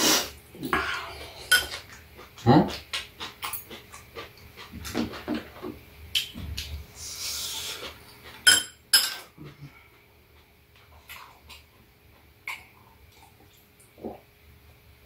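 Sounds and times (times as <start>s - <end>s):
soft eating noises: 0.0s - 8.6s, 9.2s - 15.0s
cutlery clinking against bowls: 1.5s - 2.0s, 8.4s - 9.4s.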